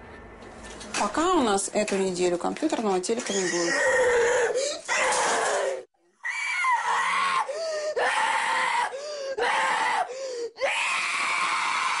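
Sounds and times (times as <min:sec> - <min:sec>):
loud screaming: 0:03.6 - 0:12.0.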